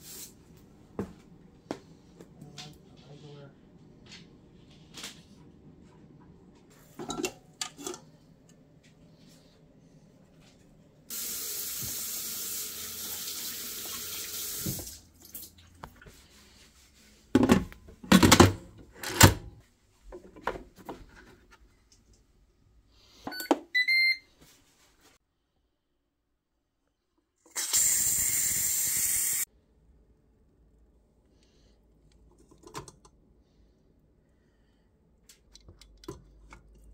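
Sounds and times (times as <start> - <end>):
steam hissing from valve: 11.1 - 13.0, 27.5 - 29.5.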